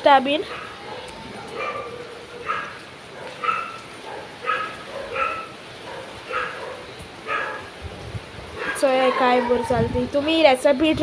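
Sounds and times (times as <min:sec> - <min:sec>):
dog barking: 0:00.4 - 0:07.8, 0:08.6 - 0:08.8.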